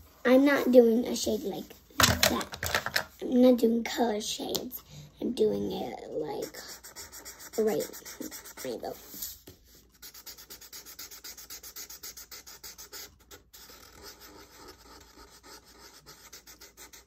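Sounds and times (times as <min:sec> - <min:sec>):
marker scratching on paper: 0:05.4 - 0:17.0.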